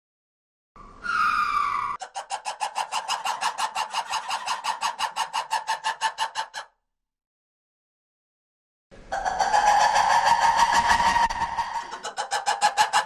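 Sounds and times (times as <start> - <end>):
lemur calling: 0.8 - 6.7.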